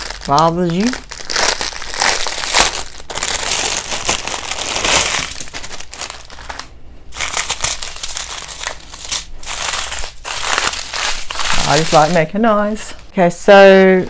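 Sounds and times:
plastic bag crinkling: 0.0s - 12.4s
plastic packets shuffled: 0.0s - 12.8s.

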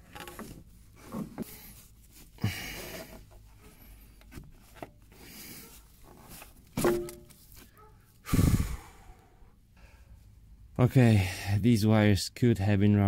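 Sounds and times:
hand and rag rubbing: 0.3s - 7.8s.

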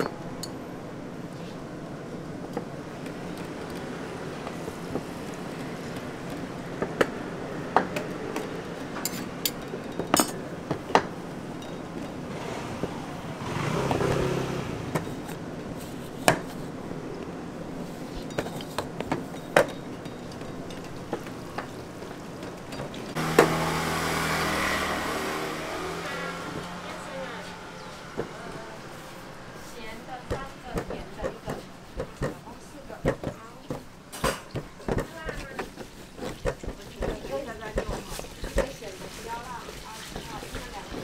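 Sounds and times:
engine-like hum: 0.0s - 32.0s
traffic hum: 0.0s - 41.0s
utensils tapping on steel counter: 7.8s - 12.2s, 18.1s - 23.5s, 30.2s - 38.9s.

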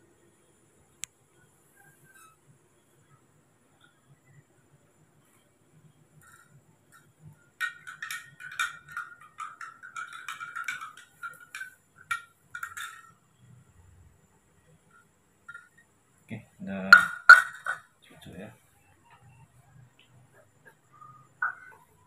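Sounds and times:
teaspoon clinking in glass: 7.6s - 13.2s.

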